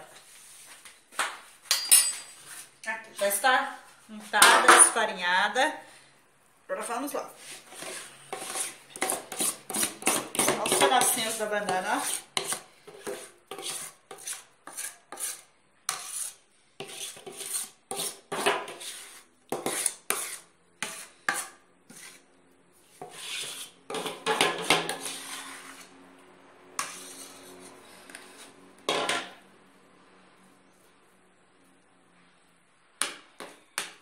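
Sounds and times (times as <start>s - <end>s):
metal spoon scraping bowl: 7.4s - 22.2s, 23.0s - 26.0s, 26.8s - 29.3s.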